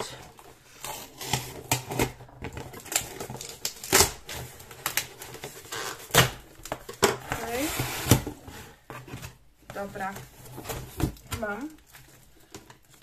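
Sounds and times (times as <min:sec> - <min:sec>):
parcel packaging tearing: 0:00.8 - 0:08.2.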